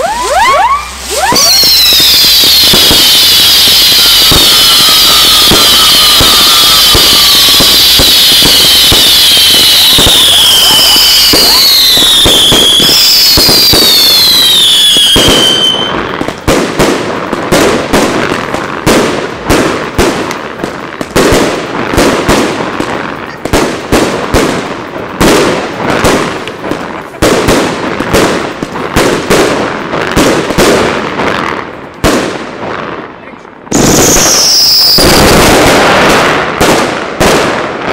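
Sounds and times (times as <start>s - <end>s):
firework whistles: 0.0s - 18.2s, 33.7s - 36.7s
firework bangs: 0.0s - 37.9s
hiss of sparks: 0.1s - 12.7s.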